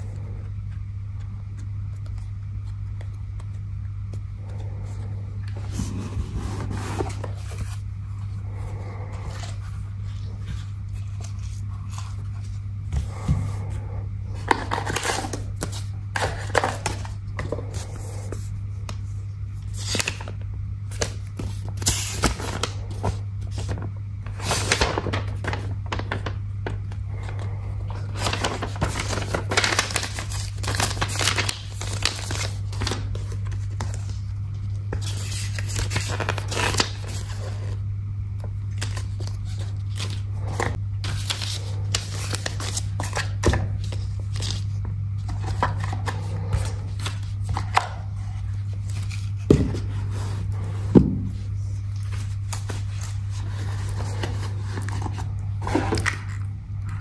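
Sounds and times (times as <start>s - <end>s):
steady low hum: 0.0s - 57.0s
paper rustling and crinkling: 0.7s - 37.8s, 38.4s - 56.5s.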